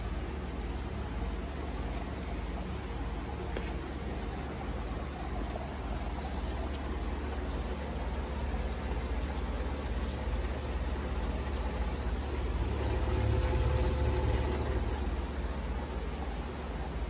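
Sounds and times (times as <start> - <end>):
low hum: 0.0 - 17.0
water pouring and bubbling: 4.2 - 17.0.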